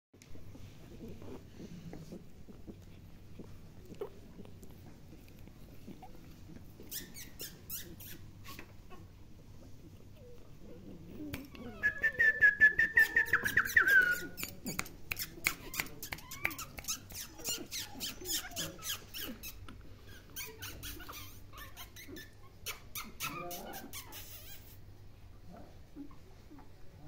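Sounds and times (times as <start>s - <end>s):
puppies whining and squeaking: 0.5s - 24.9s
quick clicking sounds: 13.3s - 17.6s.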